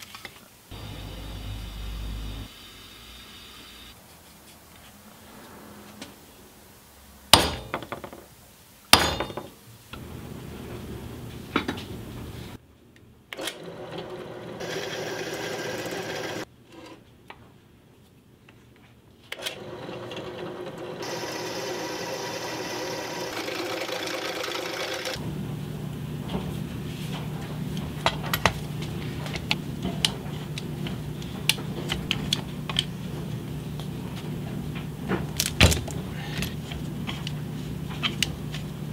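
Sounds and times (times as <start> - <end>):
drill press boring through steel: 13.6 - 16.4, 19.6 - 25.2.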